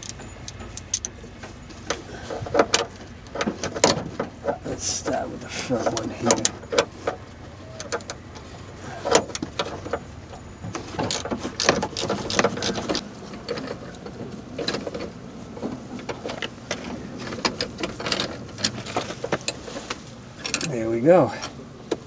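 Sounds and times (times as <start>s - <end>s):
ratchet wrench clicking: 0.0s - 1.2s, 11.1s - 13.0s.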